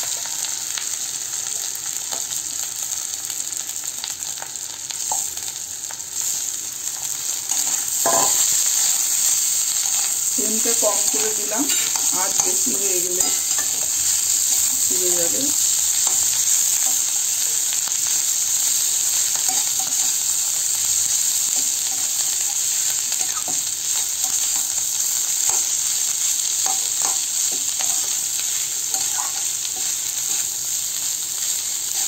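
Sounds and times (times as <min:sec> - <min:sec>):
food sizzling in oil: 0:00.0 - 0:32.0
spatula scraping pan: 0:07.5 - 0:14.3, 0:26.6 - 0:30.6.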